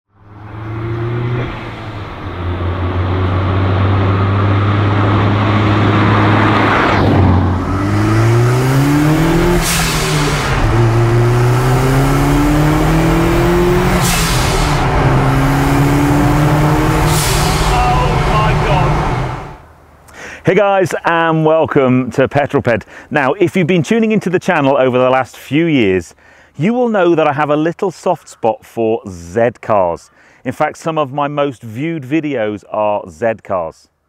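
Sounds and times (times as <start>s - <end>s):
car engine revving: 0.2s - 19.7s.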